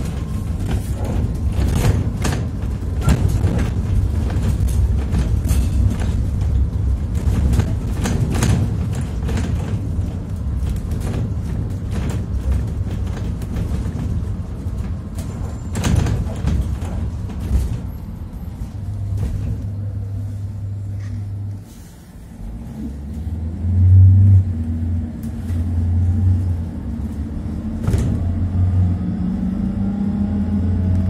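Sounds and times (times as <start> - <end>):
cabin clicks and rattles: 0.0 - 20.1
engine and road rumble: 0.0 - 31.0.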